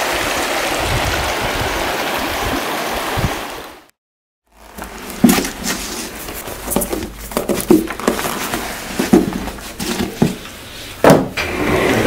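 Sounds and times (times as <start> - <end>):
clothing and leather rustling: 4.5 - 10.6.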